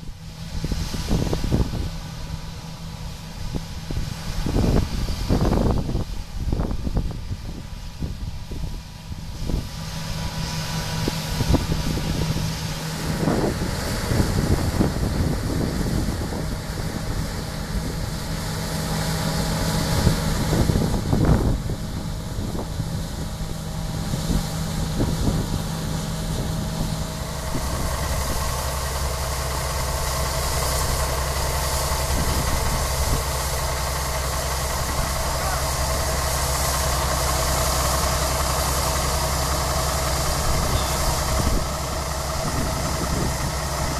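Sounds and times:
wind gusts on microphone: 0.0 - 2.4, 3.1 - 33.7, 34.5 - 43.9
combine harvester engine droning: 0.0 - 43.9.

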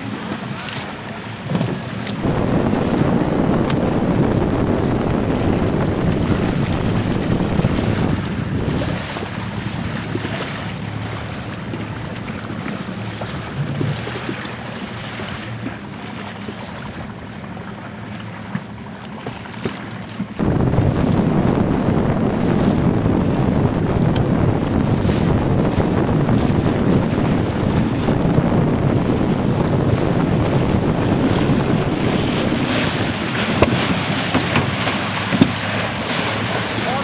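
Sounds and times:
waves washing: 0.0 - 37.0
wind buffeting microphone: 0.0 - 37.0.

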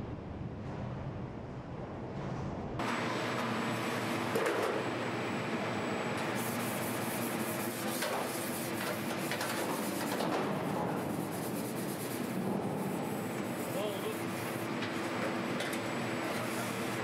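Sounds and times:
factory floor hum: 0.0 - 17.0
hand tool scraping steel panel: 6.4 - 12.4.

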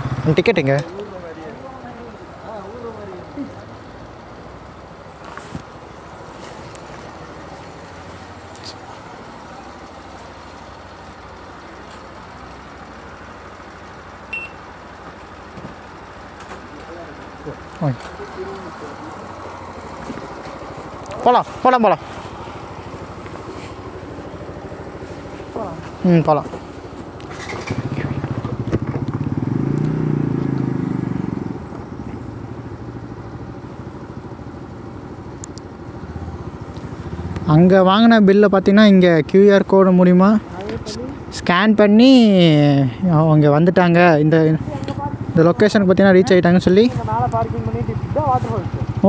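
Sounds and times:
fan humming: 0.0 - 49.0
motorcycle engine running: 0.0 - 49.0
road traffic: 0.0 - 49.0
short electronic beep: 14.3 - 14.6.

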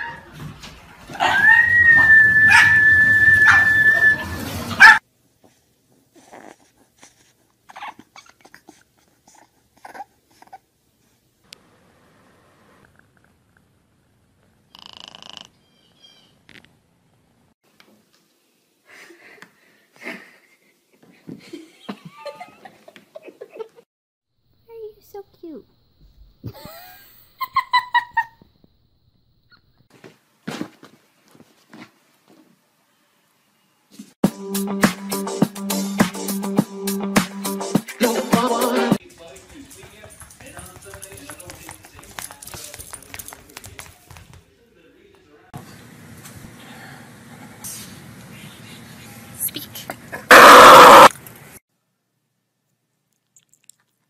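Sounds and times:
steady high whistle: 1.8 - 4.4
puppy whimpering and snuffling: 6.1 - 10.6
dog paws clattering on wood: 39.2 - 44.4.

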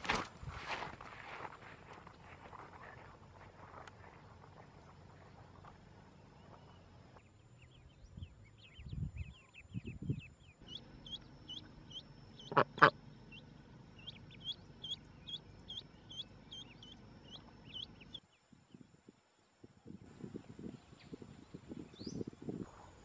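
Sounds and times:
ducklings peeping: 8.4 - 18.2
duck quacking loudly: 12.4 - 13.0.

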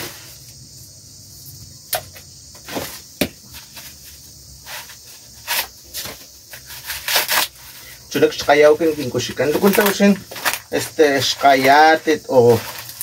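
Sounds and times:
steady high hiss: 0.0 - 13.0
dry husk crackling rustles: 5.9 - 13.0
dry husks snapping: 9.4 - 11.8.

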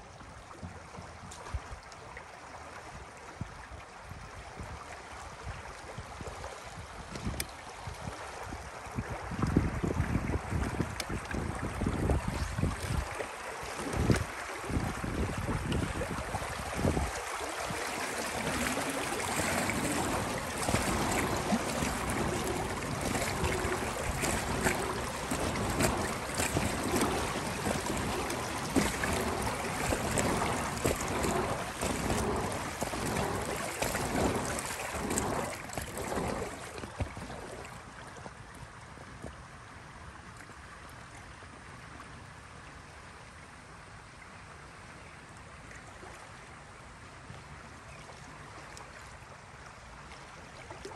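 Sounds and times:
kayak paddle splashing: 4.7 - 40.7
water hiss: 15.9 - 37.8.

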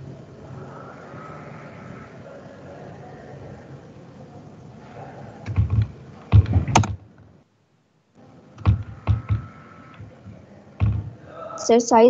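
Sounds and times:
keyboard keys and mouse clicking: 5.4 - 7.0, 8.6 - 10.1.

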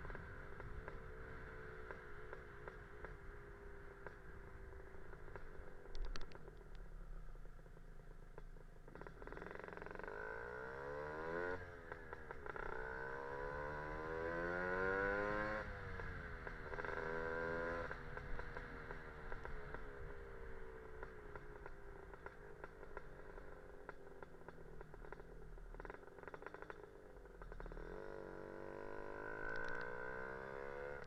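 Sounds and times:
scooter engine accelerating: 0.0 - 31.0
sharp clicks: 29.5 - 29.9.

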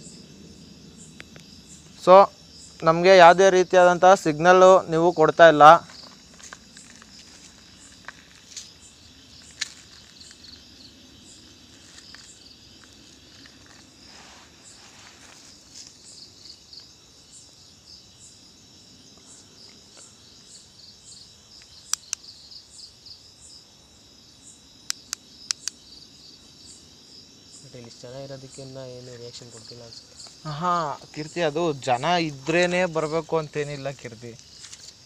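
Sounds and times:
crickets chirping: 0.0 - 35.0
sharp clicks: 21.6 - 22.2, 24.9 - 25.8.

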